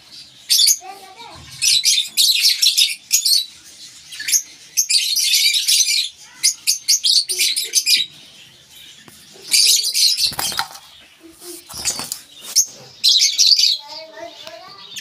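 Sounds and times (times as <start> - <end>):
lovebirds chattering: 0.0 - 15.0
wings flapping: 10.2 - 12.6.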